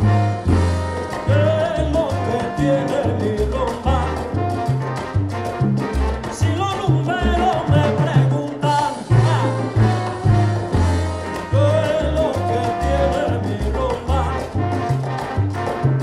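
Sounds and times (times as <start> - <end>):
pulsing bass line: 0.0 - 16.0
salsa band playing: 0.0 - 16.0
person singing: 1.2 - 4.3, 6.5 - 10.0, 11.5 - 14.5.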